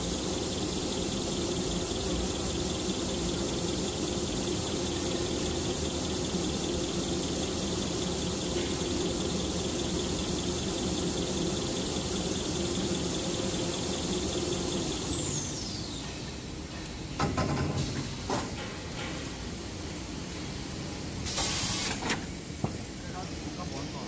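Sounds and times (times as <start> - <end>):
machine running with high whine: 0.0 - 17.0.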